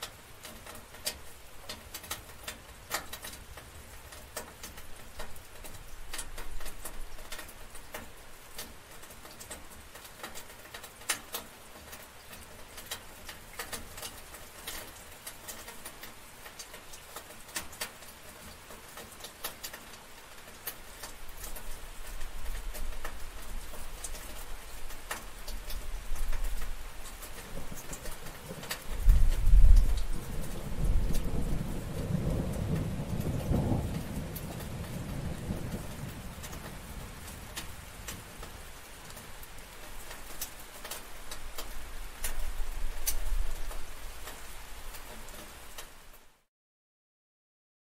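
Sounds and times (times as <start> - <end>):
sharp drips on a surface: 0.0 - 46.3
steady rain falling: 0.0 - 46.5
low rumble of thunder: 27.4 - 38.7.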